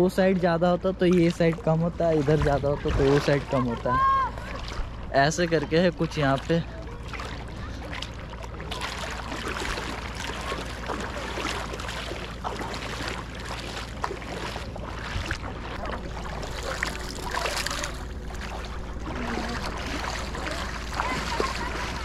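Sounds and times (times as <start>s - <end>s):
water splashing around wading feet: 0.0s - 22.0s
low rumble: 4.0s - 22.0s.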